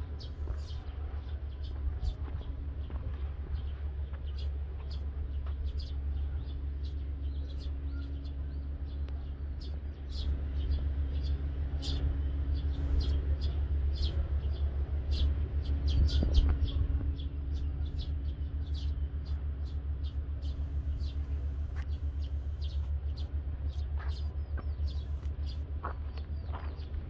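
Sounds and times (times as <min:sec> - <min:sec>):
low steady rumble: 0:00.0 - 0:27.0
small birds chirping: 0:00.0 - 0:27.0.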